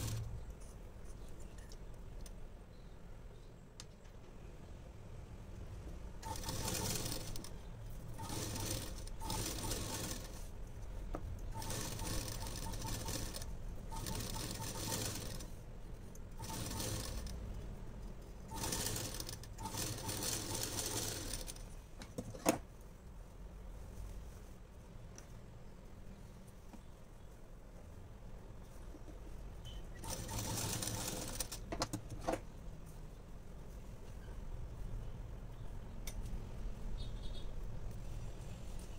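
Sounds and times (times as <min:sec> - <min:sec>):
sewing machine stitching: 0:00.0 - 0:00.3, 0:06.2 - 0:07.5, 0:08.1 - 0:10.5, 0:11.5 - 0:15.5, 0:16.4 - 0:17.4, 0:18.5 - 0:21.6, 0:29.9 - 0:31.7.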